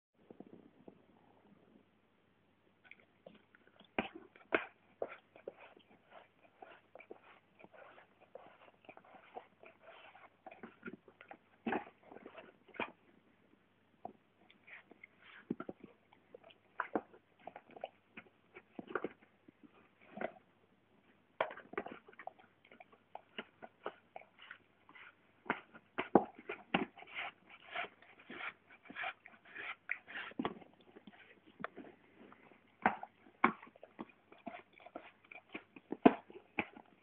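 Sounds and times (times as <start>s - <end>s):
dog licking and lapping: 29.5s - 37.0s.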